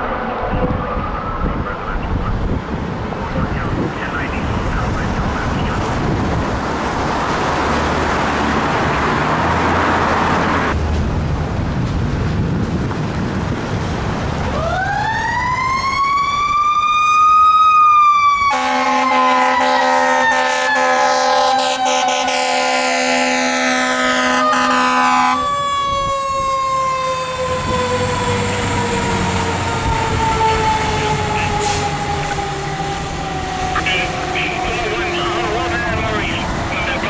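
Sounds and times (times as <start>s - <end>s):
fire engine siren: 0.0s - 10.8s, 14.2s - 37.0s
fire engine approaching: 0.0s - 37.0s
road noise of passing vehicles: 0.0s - 37.0s
air horn: 18.5s - 25.5s.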